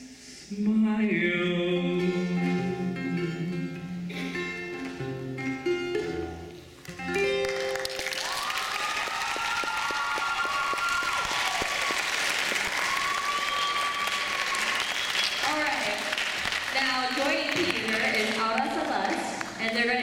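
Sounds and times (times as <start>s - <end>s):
acoustic guitar picking: 1.7s - 7.5s
audience applause: 7.1s - 19.8s
cheers: 7.6s - 16.7s.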